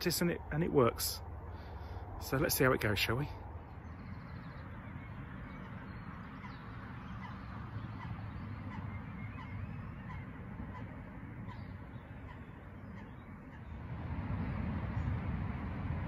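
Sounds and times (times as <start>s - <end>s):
low steady rumble: 0.0s - 16.0s
geese honking: 5.4s - 13.8s.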